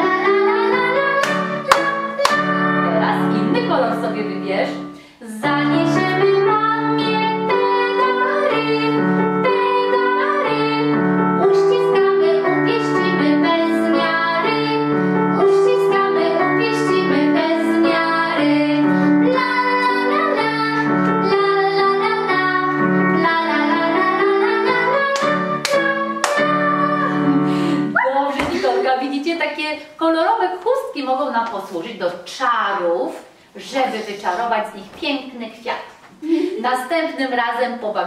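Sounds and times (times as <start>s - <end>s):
woman and girl singing: 0.0s - 27.4s
digital piano accompaniment: 0.0s - 29.1s
sharp claps: 1.2s - 2.4s, 25.2s - 26.4s.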